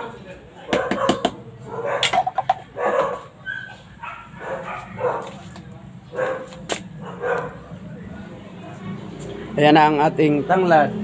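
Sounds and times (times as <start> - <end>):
dog barking: 0.7 - 5.4, 6.1 - 7.7.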